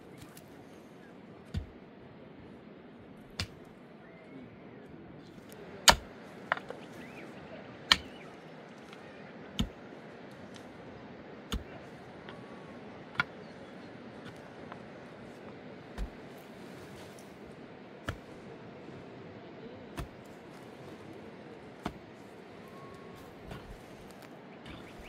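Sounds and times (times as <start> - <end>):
pick striking earth: 5.4 - 7.2, 7.9 - 9.8, 15.8 - 18.4, 19.9 - 21.0, 21.7 - 22.0, 23.4 - 25.0.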